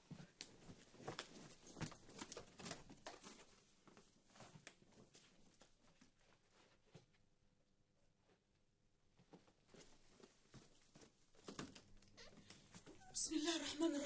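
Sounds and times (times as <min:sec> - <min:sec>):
rustling of clothes and bedding: 0:00.0 - 0:14.0.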